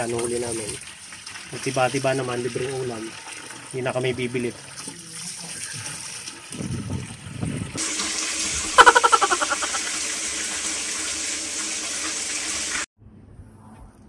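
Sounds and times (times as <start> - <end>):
rapid stuttering sound: 8.8 - 9.9.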